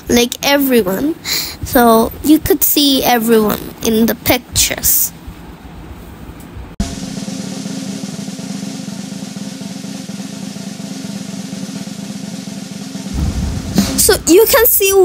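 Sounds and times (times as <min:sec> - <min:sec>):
fast drum roll: 0:06.8 - 0:15.0.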